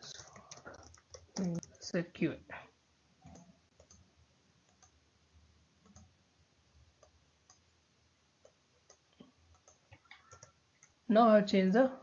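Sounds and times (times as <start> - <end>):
mouse and keyboard clicks: 8.4 - 11.0.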